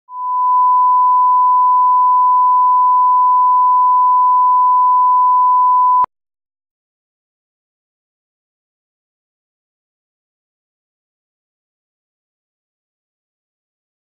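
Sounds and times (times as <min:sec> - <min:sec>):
steady pure reference tone: 0:00.1 - 0:06.1.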